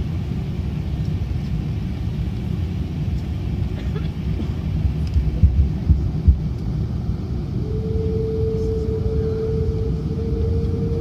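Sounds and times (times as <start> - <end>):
aircraft cabin rumble: 0.0 - 11.0
jet engines spooling up: 4.2 - 11.0.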